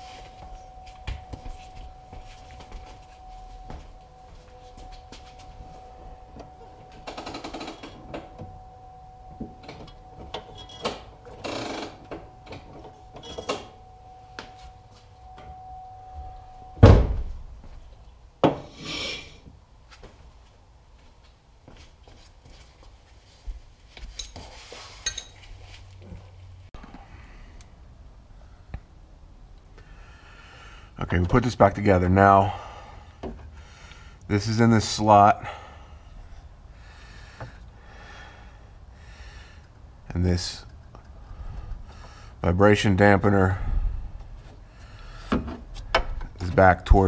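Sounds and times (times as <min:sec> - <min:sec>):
metal clicks and clunks: 0:09.4 - 0:13.8
metal hardware scraping: 0:09.6 - 0:13.8.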